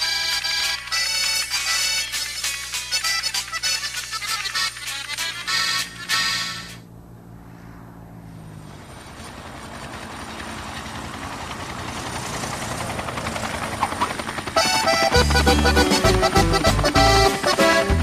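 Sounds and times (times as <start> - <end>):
music: 0.0 - 6.8, 14.6 - 18.0
helicopter rotor chop: 0.0 - 18.0.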